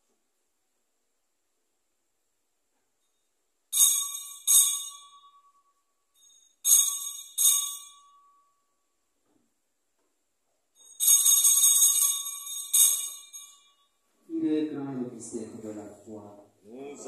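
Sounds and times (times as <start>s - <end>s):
small hand bells ringing: 3.0s - 8.9s, 10.7s - 14.0s.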